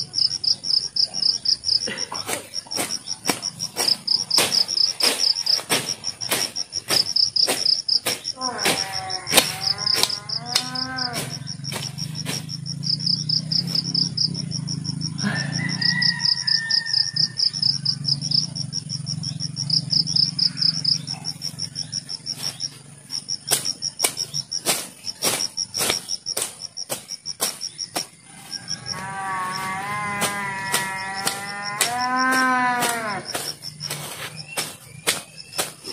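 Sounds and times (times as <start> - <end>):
crickets chirping: 0.0 - 35.9
cow mooing: 8.4 - 11.4, 28.9 - 33.3.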